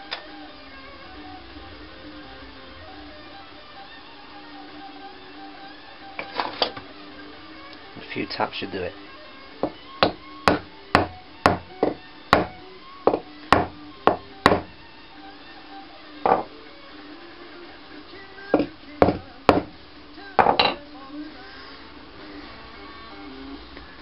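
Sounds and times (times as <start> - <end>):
hammer tapping wooden wedge: 9.6 - 14.7, 18.6 - 19.8.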